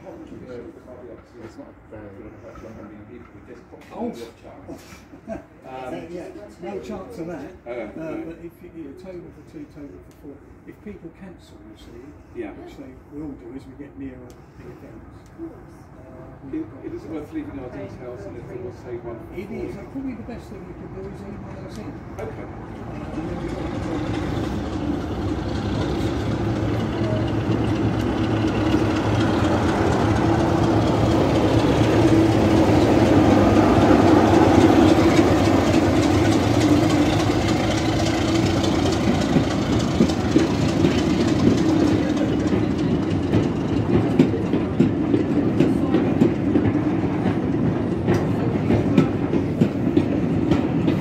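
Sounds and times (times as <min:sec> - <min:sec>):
diesel locomotive engine drone: 0:00.0 - 0:51.0
train wheels clicking over rail joints: 0:19.4 - 0:51.0.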